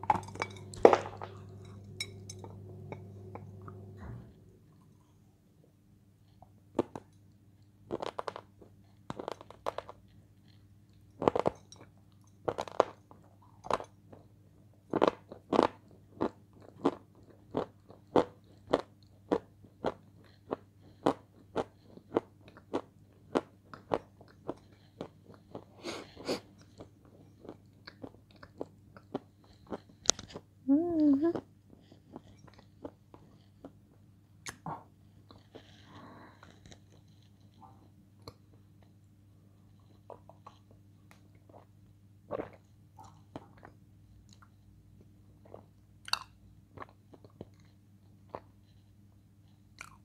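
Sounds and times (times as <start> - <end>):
crunchy food being chewed: 6.4 - 30.6, 31.4 - 39.0, 39.6 - 50.0.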